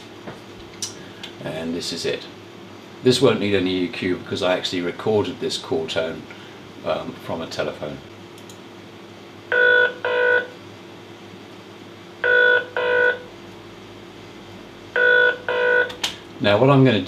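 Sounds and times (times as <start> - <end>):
telephone ringing tone: 9.5 - 10.5, 12.2 - 13.2, 15.0 - 15.9.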